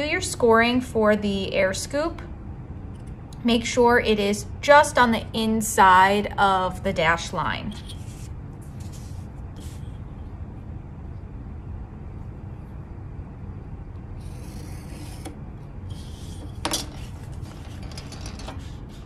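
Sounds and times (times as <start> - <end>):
knife blade scratching cardboard: 14.2 - 17.7.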